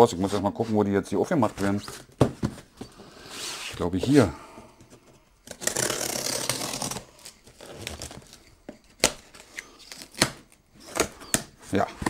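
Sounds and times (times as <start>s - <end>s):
blade slitting packing tape: 5.4s - 8.2s.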